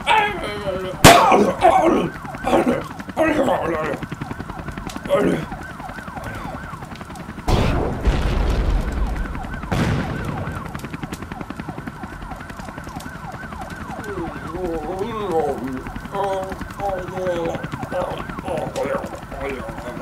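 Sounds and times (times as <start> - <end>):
sirens wailing: 0.0 - 20.0
heavy explosion booms: 7.5 - 10.6.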